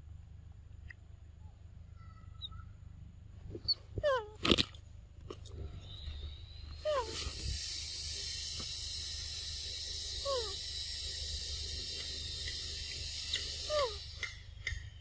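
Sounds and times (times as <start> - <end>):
insects hissing: 5.9 - 15.0.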